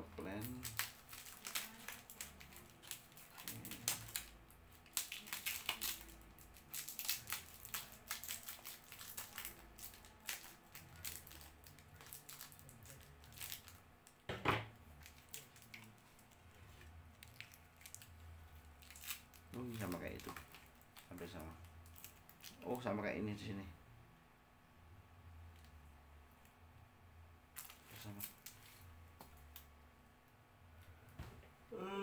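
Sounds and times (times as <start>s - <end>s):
plastic wrapping crinkling: 0.2s - 13.8s, 14.9s - 22.9s, 27.5s - 29.6s.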